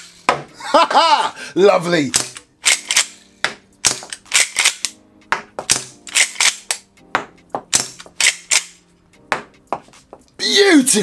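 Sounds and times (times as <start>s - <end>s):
plastic shells ejected: 2.1s - 3.1s
shotgun lever action clacking: 2.1s - 3.2s, 3.8s - 5.0s, 5.7s - 6.9s, 7.7s - 8.8s.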